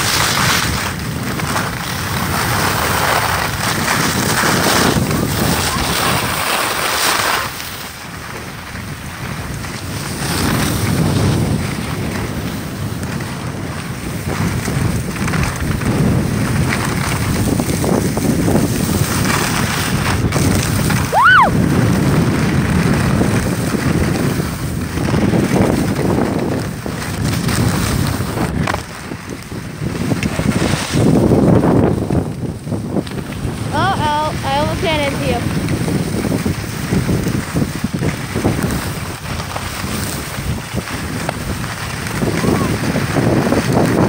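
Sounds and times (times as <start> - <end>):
skis scraping on snow: 0.0 - 44.0
wind buffeting microphone: 0.0 - 44.0.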